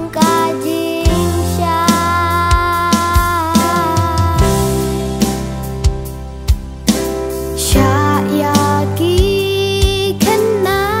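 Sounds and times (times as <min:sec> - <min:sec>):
drum beats: 0:00.0 - 0:10.7
steady bass: 0:00.0 - 0:11.0.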